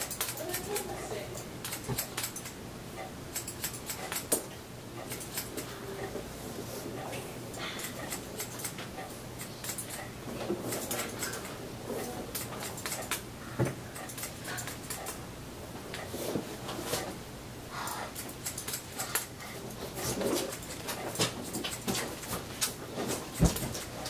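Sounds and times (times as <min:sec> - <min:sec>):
scissors snipping hair: 0:00.0 - 0:02.6, 0:03.3 - 0:06.1, 0:07.0 - 0:13.2, 0:13.9 - 0:15.2, 0:17.8 - 0:24.0.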